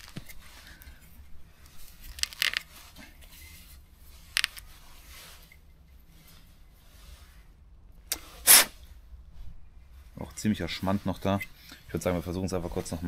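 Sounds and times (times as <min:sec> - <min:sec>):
rubber cap scraping: 0:01.6 - 0:05.6.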